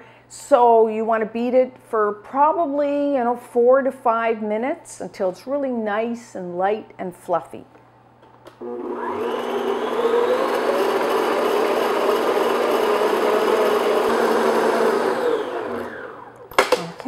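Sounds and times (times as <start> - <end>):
stand mixer running: 8.6 - 16.5.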